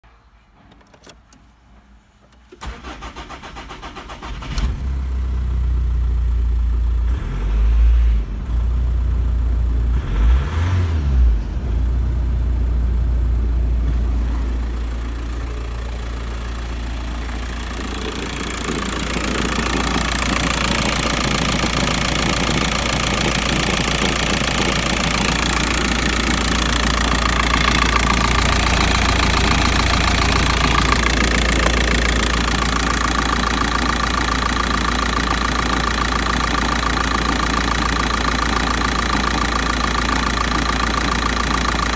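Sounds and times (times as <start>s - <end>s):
diesel engine cranking and starting: 2.2s - 41.9s
diesel engine idling: 11.3s - 41.9s.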